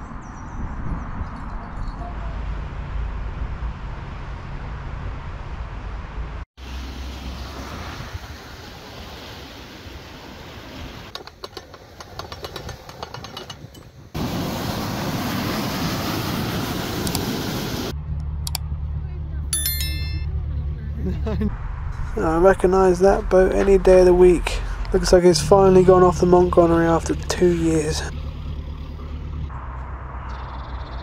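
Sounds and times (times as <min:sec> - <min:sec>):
wind: 0:00.0 - 0:31.0
water noise: 0:06.6 - 0:18.0, 0:21.8 - 0:29.4
diesel boat engine humming: 0:14.2 - 0:30.6.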